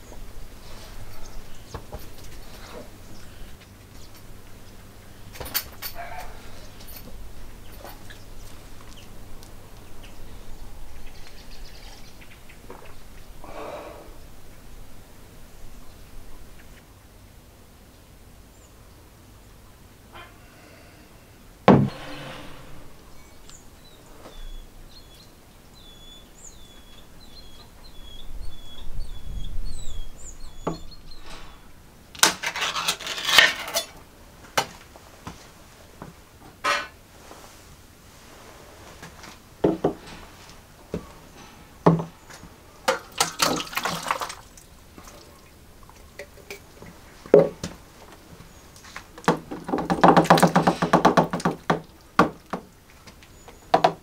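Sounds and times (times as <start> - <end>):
rustling or scraping: 21.7 - 24.5, 31.1 - 34.0, 34.8 - 42.7.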